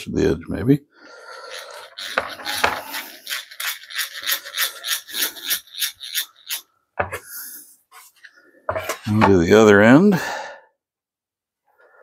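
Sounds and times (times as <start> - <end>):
hand drill rasping into wood: 1.3 - 6.7.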